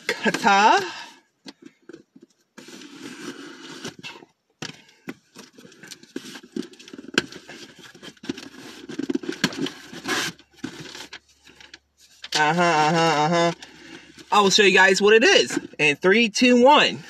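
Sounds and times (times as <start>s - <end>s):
packaging rustling: 4.8s - 12.3s
box cutter slitting package: 8.4s - 11.1s.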